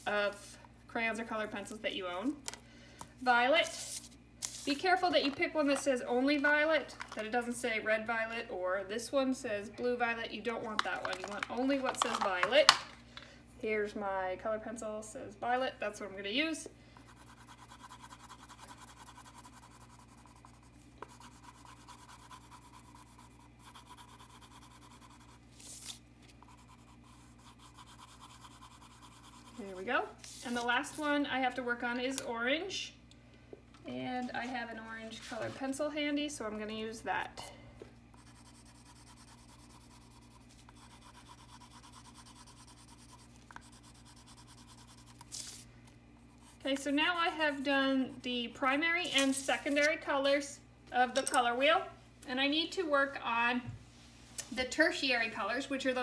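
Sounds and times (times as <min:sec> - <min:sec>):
colored pencil scribbling on paper: 0:17.1 - 0:25.4, 0:26.4 - 0:29.8, 0:38.2 - 0:45.2, 0:46.3 - 0:48.3.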